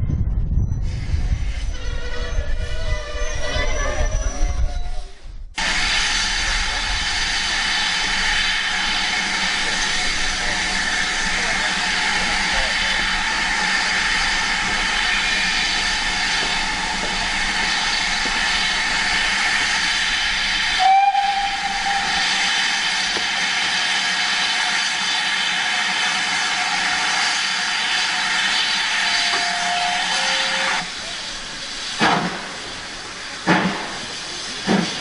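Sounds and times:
steam hissing: 0:05.6 - 0:35.0
steam locomotive whistle: 0:20.6 - 0:22.7, 0:27.9 - 0:30.8
lower whistle tone: 0:20.7 - 0:22.7.

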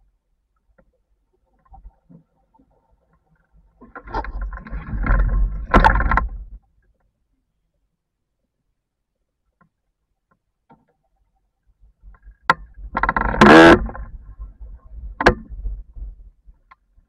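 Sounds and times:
low rumble of hull and rigging: 0:00.0 - 0:17.0
buzzing creak rising in pitch: 0:12.9 - 0:14.1.

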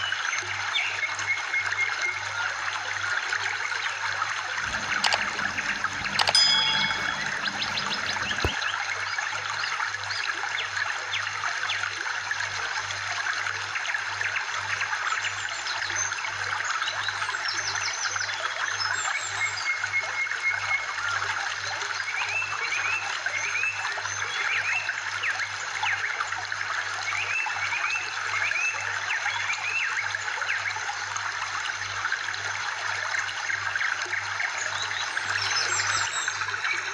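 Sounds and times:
trickling stream water: 0:00.0 - 0:36.9
short high chirps: 0:04.6 - 0:08.6.

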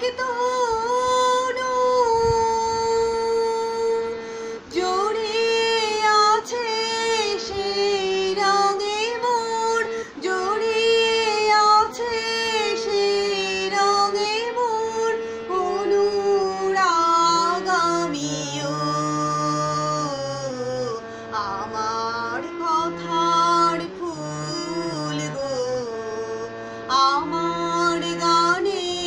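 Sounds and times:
woman singing solo: 0:00.0 - 0:29.0.

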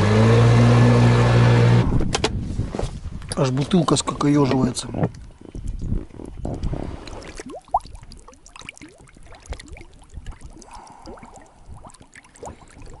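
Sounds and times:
bottle gurgling underwater: 0:05.1 - 0:13.0.

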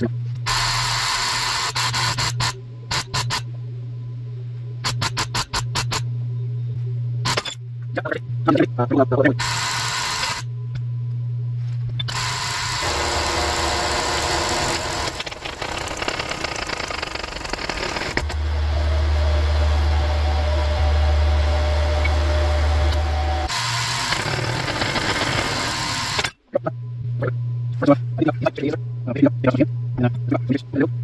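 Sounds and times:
steady machine noise: 0:00.0 - 0:04.0, 0:07.2 - 0:10.6, 0:11.9 - 0:31.0
hydraulic press motor humming: 0:12.0 - 0:27.3.

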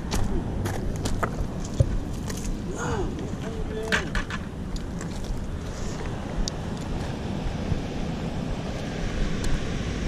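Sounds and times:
footsteps on loose stones: 0:00.0 - 0:02.6
flowing river water: 0:00.0 - 0:10.0
wind buffeting microphone: 0:00.0 - 0:10.0.

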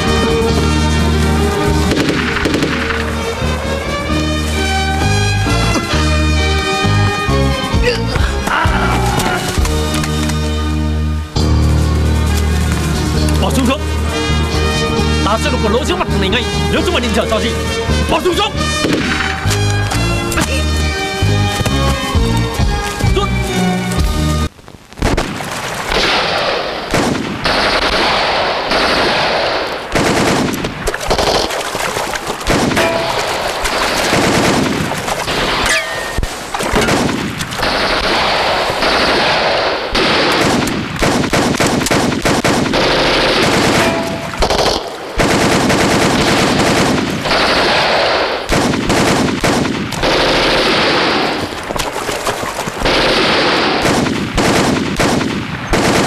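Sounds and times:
automatic gunfire bursts: 0:01.8 - 0:03.2, 0:25.9 - 0:33.0, 0:33.6 - 0:35.6, 0:36.7 - 0:51.4, 0:52.8 - 0:56.0.

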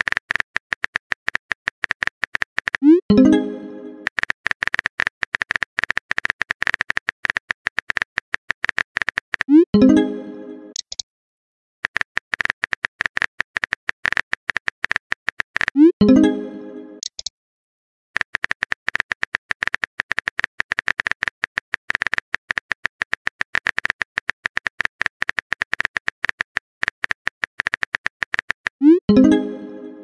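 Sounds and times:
rapid keyboard clicks: 0:00.0 - 0:03.0, 0:04.0 - 0:09.6, 0:11.8 - 0:15.8, 0:18.2 - 0:28.8
chat message chime: 0:03.1 - 0:04.1, 0:09.7 - 0:10.8, 0:28.8 - 0:30.0.

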